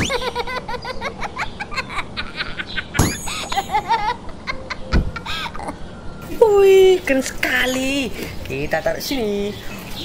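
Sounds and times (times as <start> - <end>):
cartoon cats laughing and chattering: 0.0 - 5.8
sharp hit: 3.0 - 3.7.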